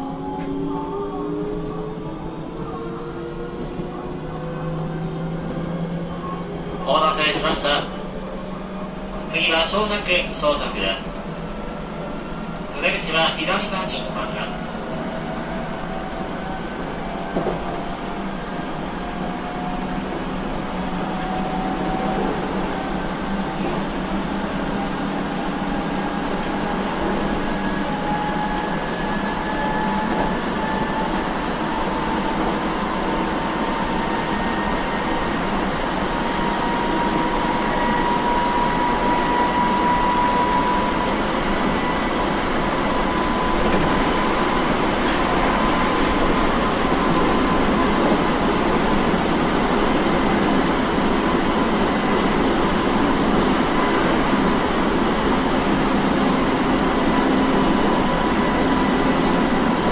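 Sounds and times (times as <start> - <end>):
wheels rumbling on rail: 0.0 - 59.9.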